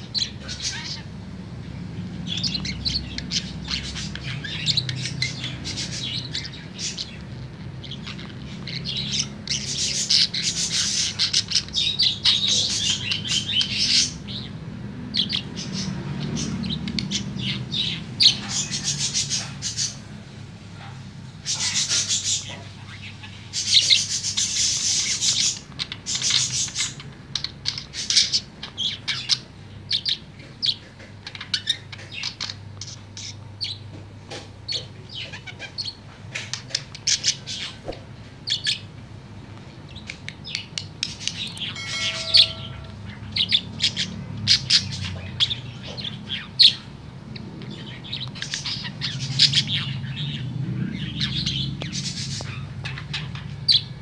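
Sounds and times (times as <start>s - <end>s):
budgerigar warbling: 41.3s - 45.4s.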